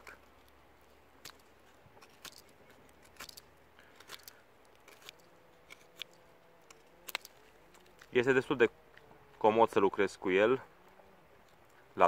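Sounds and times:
knife shaving wooden stick: 0.0s - 8.2s.

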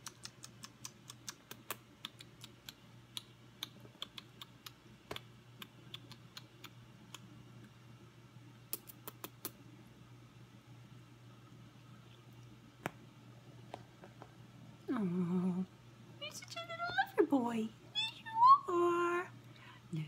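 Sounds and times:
kitten mouth clicks: 0.0s - 7.3s, 8.7s - 9.6s.

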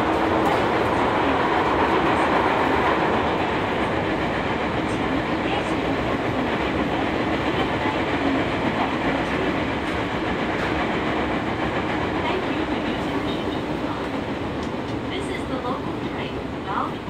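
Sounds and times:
subway wheels rumbling on rail: 0.0s - 17.0s.

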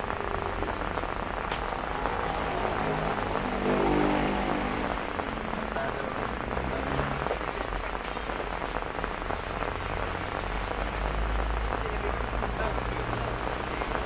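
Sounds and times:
heavy rain hissing: 0.0s - 14.0s
running water: 0.0s - 14.0s
low rumble: 0.1s - 7.6s.

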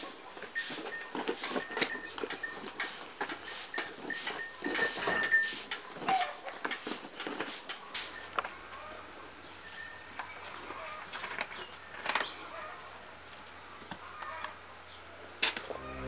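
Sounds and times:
broom sweeping dirt: 0.0s - 2.0s, 2.7s - 8.3s.

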